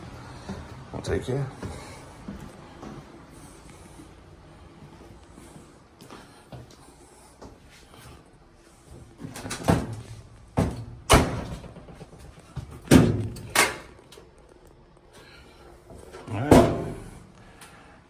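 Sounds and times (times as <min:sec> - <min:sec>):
doors and lids banging: 0:09.2 - 0:13.9, 0:16.2 - 0:17.2.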